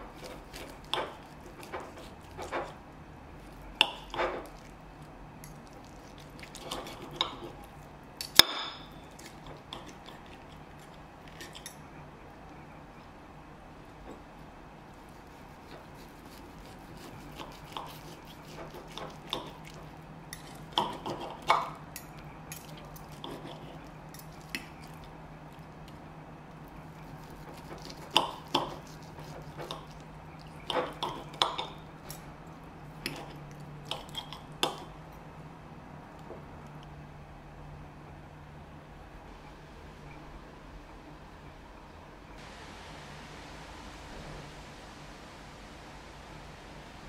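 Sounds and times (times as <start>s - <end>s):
knife and fork scraping plate: 0.1s - 2.8s, 5.4s - 11.8s, 15.2s - 25.0s, 27.0s - 32.2s, 33.0s - 35.0s.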